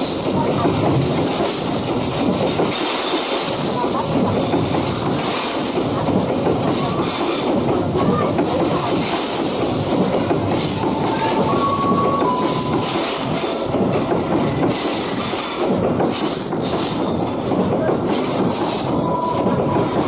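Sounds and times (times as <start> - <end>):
train wheels on rails: 0.0 - 20.0.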